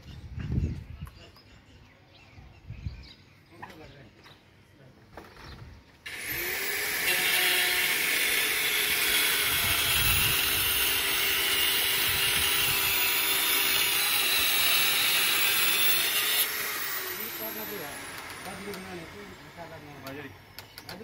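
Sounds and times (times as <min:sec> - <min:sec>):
electric power tool running: 0:06.1 - 0:20.4.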